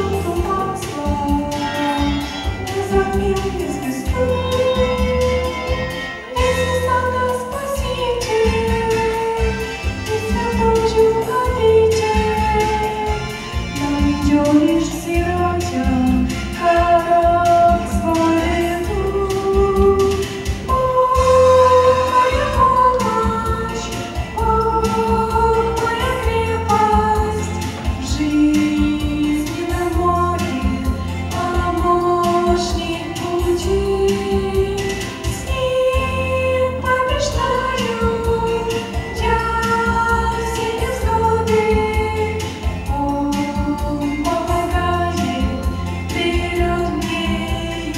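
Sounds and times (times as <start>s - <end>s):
instrumental accompaniment with bass: 0.0s - 47.9s
girls singing a slow song: 13.8s - 47.9s.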